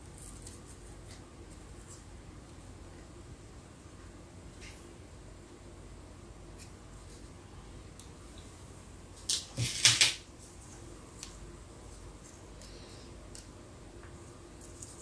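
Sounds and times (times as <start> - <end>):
faint steady hum: 0.0 - 15.0
crackly rustling and scraping: 8.0 - 15.0.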